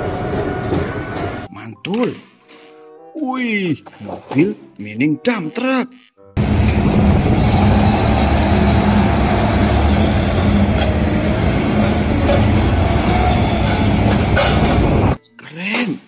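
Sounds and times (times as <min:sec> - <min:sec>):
dump truck diesel engine droning: 0:06.4 - 0:15.2.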